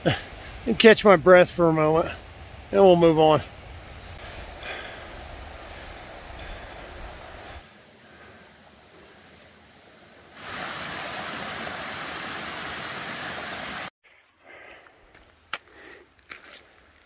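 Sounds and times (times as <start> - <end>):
creek water rushing: 4.2 - 13.9.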